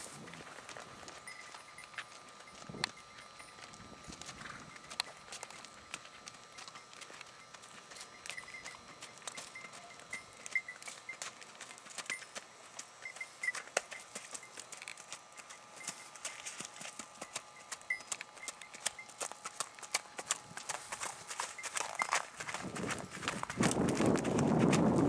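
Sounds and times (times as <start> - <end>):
horse hoofbeats on hard ground: 0.0 - 25.0.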